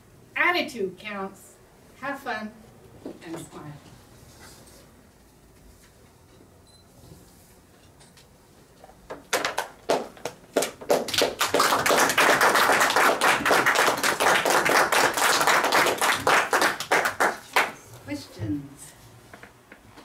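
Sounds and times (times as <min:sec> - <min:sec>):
small audience applauding: 0:09.2 - 0:17.8.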